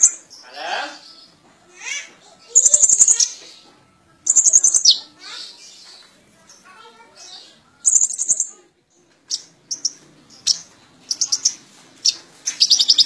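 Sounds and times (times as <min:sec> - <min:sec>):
sunbird chirping and trilling: 0:00.0 - 0:13.0.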